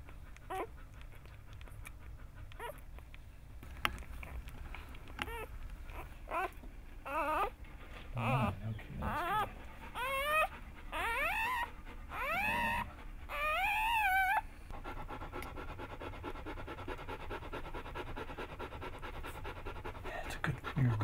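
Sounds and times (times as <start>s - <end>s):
puppy panting: 0.0s - 21.0s
puppy crying high squeals: 5.2s - 7.6s, 8.2s - 14.4s.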